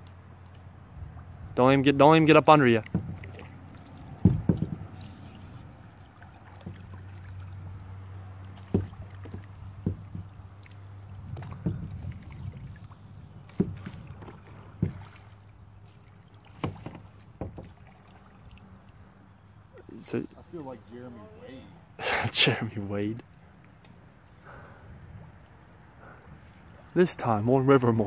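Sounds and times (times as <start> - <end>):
water lapping at hull: 0.0 - 28.0
sharp knocks on kayak: 2.8 - 3.4, 4.2 - 5.1, 6.6 - 6.9, 8.6 - 10.4, 11.3 - 12.1, 13.5 - 15.2, 16.5 - 17.8.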